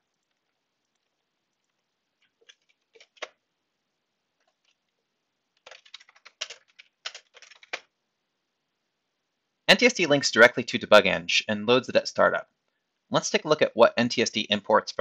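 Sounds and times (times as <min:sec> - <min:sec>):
typing on computer keyboard: 0:02.2 - 0:03.4, 0:05.6 - 0:07.9.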